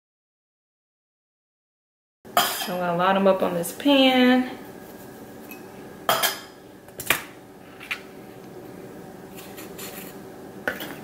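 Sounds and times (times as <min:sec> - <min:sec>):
spoon scraping squash: 0:09.3 - 0:11.0.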